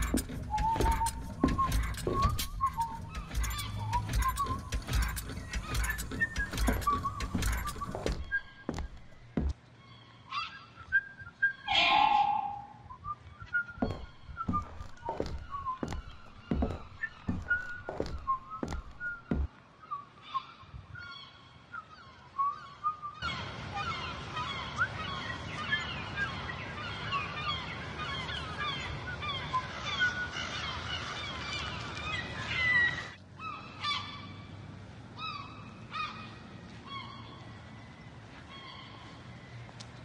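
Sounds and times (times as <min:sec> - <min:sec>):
flock of birds calling: 0:11.7 - 0:12.9.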